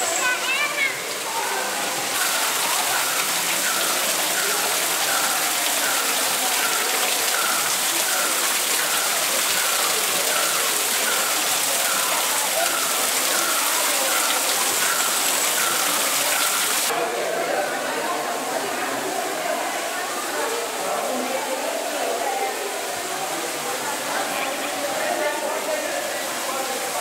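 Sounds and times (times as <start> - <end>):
falling water rushing: 0.0 - 27.0.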